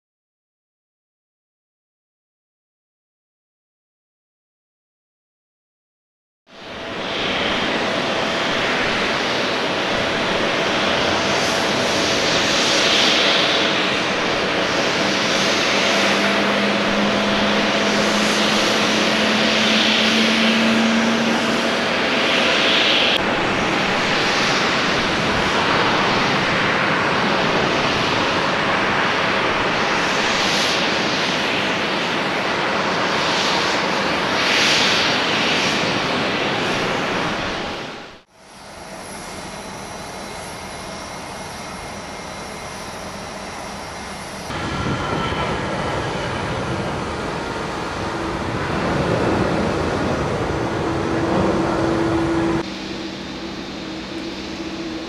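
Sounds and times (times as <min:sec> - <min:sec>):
jet engines running: 0:06.5 - 0:55.0.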